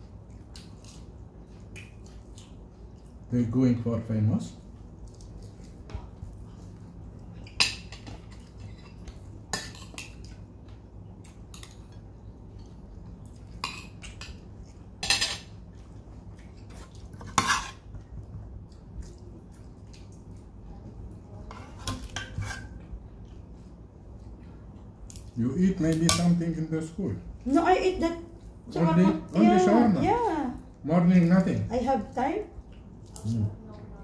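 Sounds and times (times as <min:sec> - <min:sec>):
steady low hum: 0:00.0 - 0:34.0
cutlery clinking on plates: 0:15.0 - 0:15.5.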